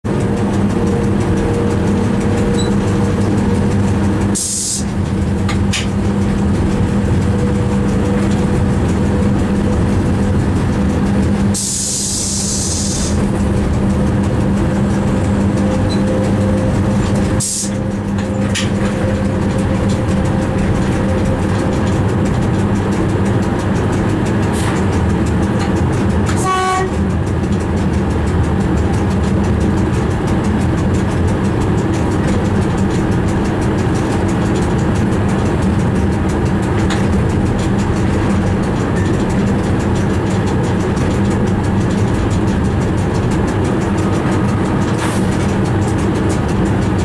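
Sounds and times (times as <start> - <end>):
train cab rumbling drone: 0.0 - 47.0
hissing air bursts: 4.4 - 4.9, 11.5 - 13.2.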